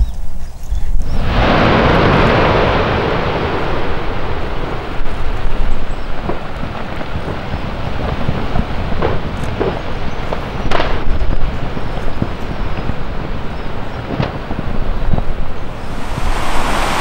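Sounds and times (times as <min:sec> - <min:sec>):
volcano exploding: 0:01.1 - 0:17.0
rushing ash jet: 0:15.8 - 0:17.0.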